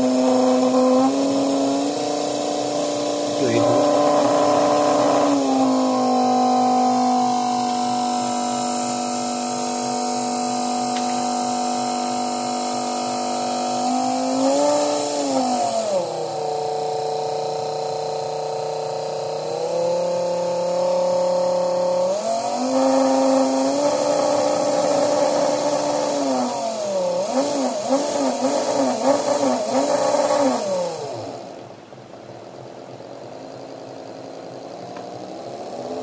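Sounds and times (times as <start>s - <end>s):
small electric motor whine: 0.0s - 36.0s.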